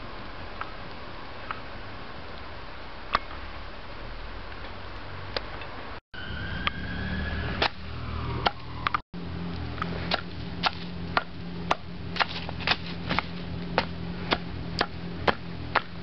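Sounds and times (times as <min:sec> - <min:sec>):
steady low background noise: 0:07.8 - 0:16.0
stick knocking on embers: 0:09.8 - 0:16.0.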